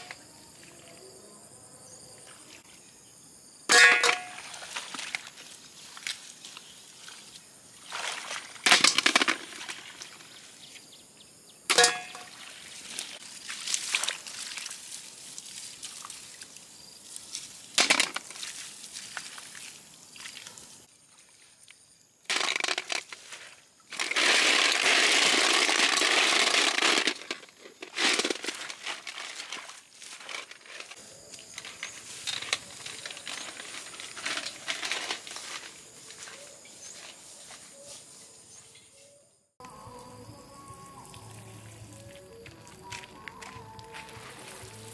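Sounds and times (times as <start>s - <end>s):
hands rustling and splashing water plants: 4.0s - 10.6s, 11.7s - 38.1s, 41.1s - 44.9s
snails clattering into metal bowl: 8.7s - 10.0s, 11.7s - 12.3s, 22.3s - 23.2s, 23.9s - 35.6s.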